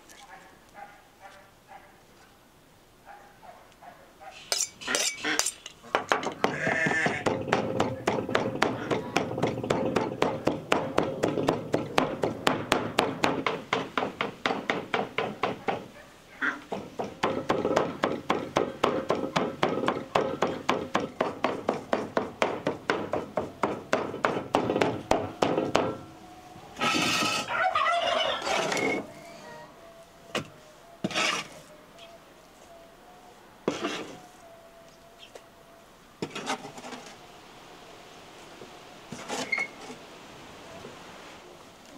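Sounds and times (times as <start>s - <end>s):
rustling scrape: 26.8s - 27.6s, 28.2s - 29.1s, 31.0s - 31.8s, 33.7s - 34.4s, 36.2s - 37.2s, 39.1s - 40.1s.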